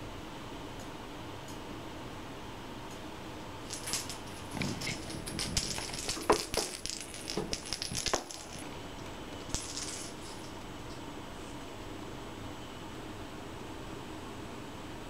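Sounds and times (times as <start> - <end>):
toy clicking and rattling: 3.7 - 8.7, 9.4 - 10.6.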